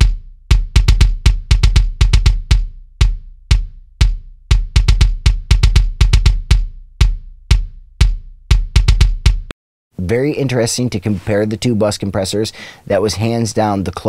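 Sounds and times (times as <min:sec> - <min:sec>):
kick drum hits: 0:00.0 - 0:09.5.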